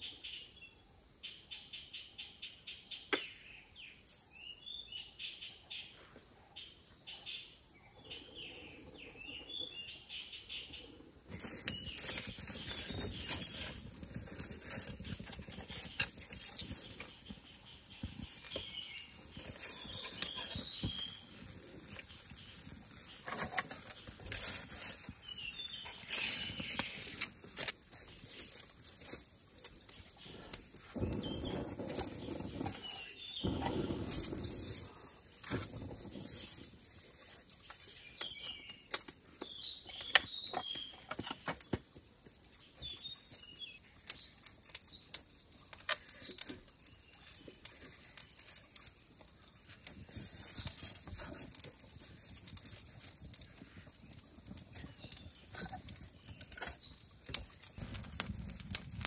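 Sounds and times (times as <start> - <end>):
faint high bird chirps: 14.6 - 24.1, 31.0 - 36.6.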